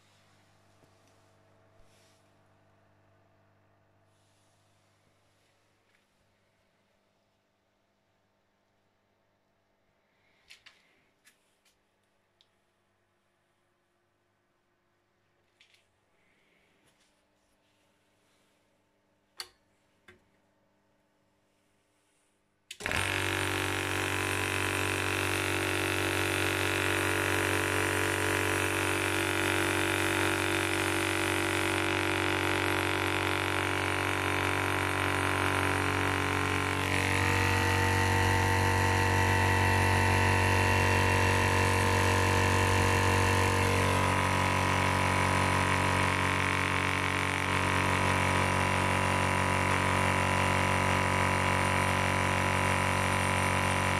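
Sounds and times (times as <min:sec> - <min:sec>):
air compressor motor humming: 0:00.0 - 0:06.7, 0:22.7 - 0:53.9.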